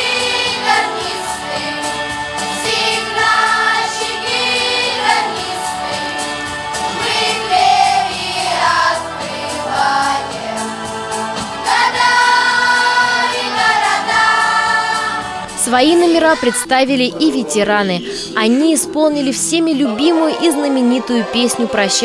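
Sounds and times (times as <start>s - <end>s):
children's choir singing: 0.0s - 16.7s.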